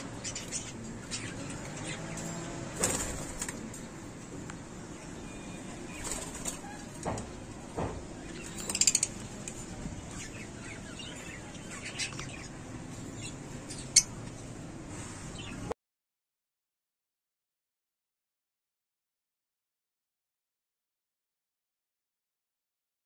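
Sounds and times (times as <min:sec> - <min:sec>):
birds chirping: 0:00.0 - 0:15.8
birds fluttering wings: 0:02.6 - 0:03.9, 0:05.9 - 0:06.8.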